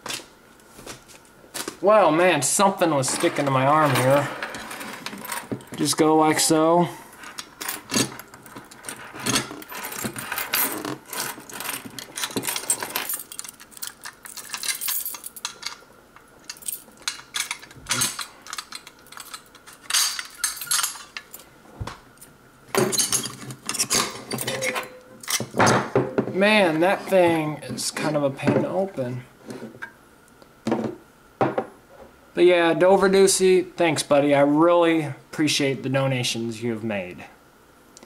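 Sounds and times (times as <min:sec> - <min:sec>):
keys clinking on key ring: 0:07.6 - 0:15.8, 0:16.4 - 0:21.5.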